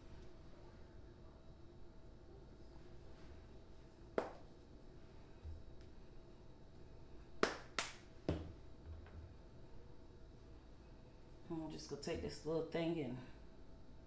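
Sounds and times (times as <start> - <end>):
dull knock: 8.3 - 9.2
soft bumps: 8.3 - 9.4.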